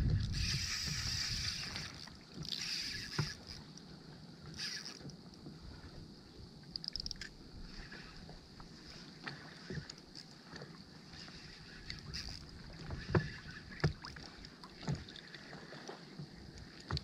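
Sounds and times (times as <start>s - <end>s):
wind and water hiss: 0.0s - 17.0s
faint clicks: 0.2s - 5.6s, 6.6s - 10.8s.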